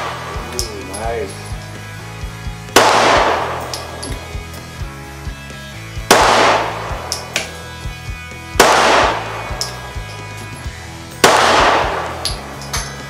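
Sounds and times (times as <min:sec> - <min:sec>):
background music with steady beat: 0:00.0 - 0:13.0
pistol shots echoing: 0:02.7 - 0:04.2, 0:06.1 - 0:07.6, 0:08.6 - 0:09.9, 0:11.2 - 0:13.0.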